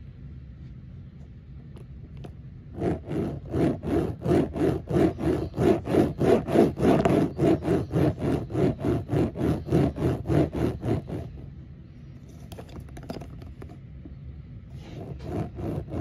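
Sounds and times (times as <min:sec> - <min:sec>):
toy wheels rolling on hard surface: 0:02.8 - 0:11.4, 0:12.3 - 0:13.8.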